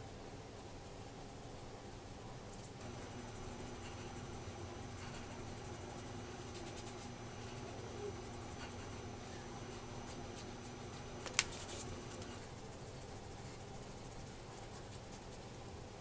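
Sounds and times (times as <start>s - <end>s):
low room hum: 0.0s - 16.0s
hands rubbing beard: 2.9s - 12.4s
sharp click: 11.2s - 11.8s.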